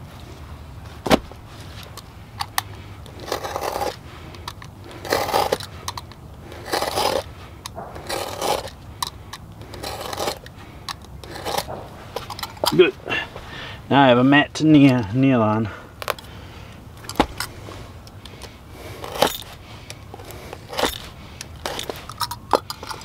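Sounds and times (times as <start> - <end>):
knife scraping rubber: 1.1 - 13.5, 17.0 - 23.0.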